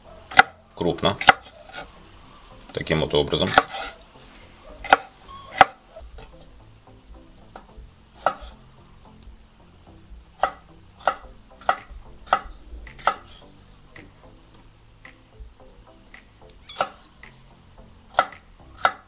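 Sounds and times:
knife chopping on wooden board: 4.8s - 5.8s.

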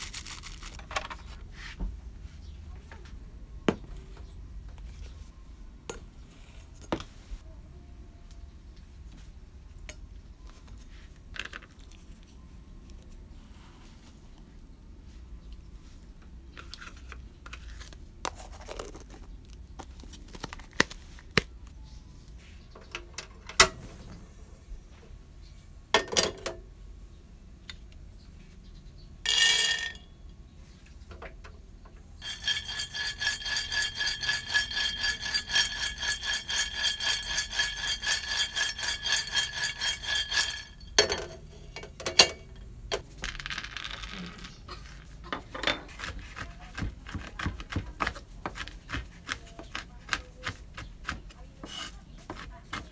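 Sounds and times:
peanuts rattling in steel pan: 29.3s - 30.0s, 32.2s - 41.5s
kitchen utensils clicking: 32.2s - 43.0s.

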